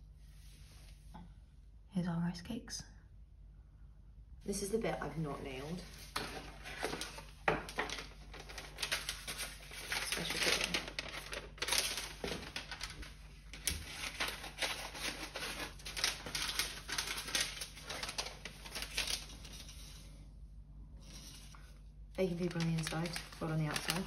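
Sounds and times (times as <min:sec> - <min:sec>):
foil wrap crinkling: 0:05.6 - 0:20.2, 0:21.0 - 0:24.0.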